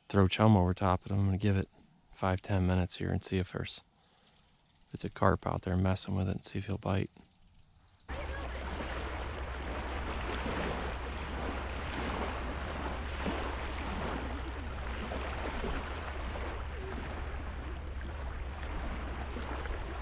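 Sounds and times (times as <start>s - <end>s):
waves lapping at shore: 8.1s - 20.0s
wind rumble on microphone: 8.1s - 20.0s.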